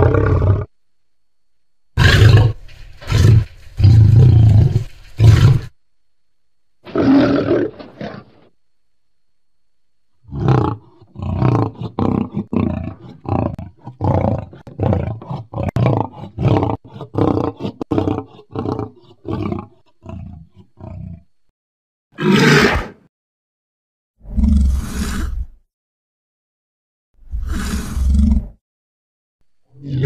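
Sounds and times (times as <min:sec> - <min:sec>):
choppy dinosaur growling calls: 0:00.0 - 0:00.7, 0:02.0 - 0:05.8, 0:06.8 - 0:08.5, 0:10.2 - 0:21.3, 0:29.7 - 0:30.0
dinosaur roar: 0:00.0 - 0:00.7, 0:02.0 - 0:05.7, 0:06.9 - 0:08.5, 0:10.2 - 0:21.3, 0:24.2 - 0:25.6, 0:27.3 - 0:28.6, 0:29.7 - 0:30.0.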